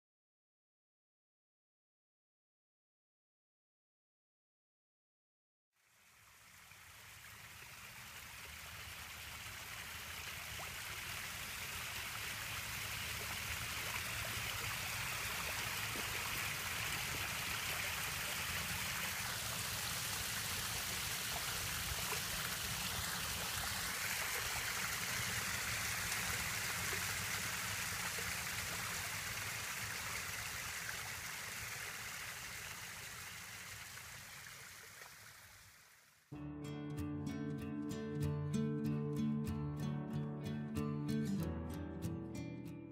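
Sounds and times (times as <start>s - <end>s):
small waterfall splashing over rocks: 5.8s - 36.3s.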